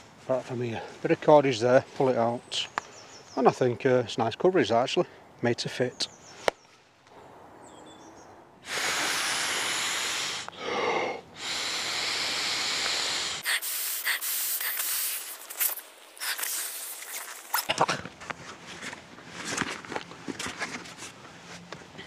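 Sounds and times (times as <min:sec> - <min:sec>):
quick breath drawn in: 0:08.6 - 0:15.4
man blowing into a valve: 0:08.6 - 0:17.8.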